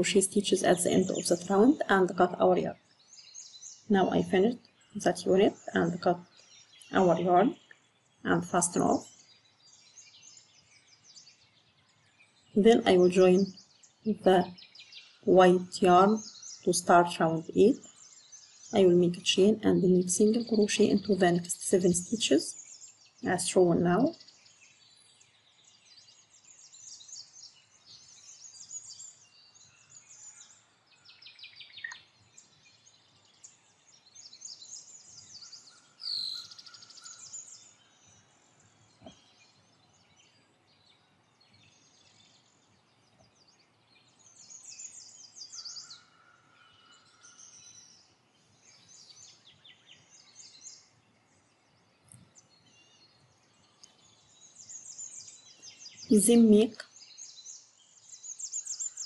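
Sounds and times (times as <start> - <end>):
birds chirping and trilling: 0.0 - 59.0.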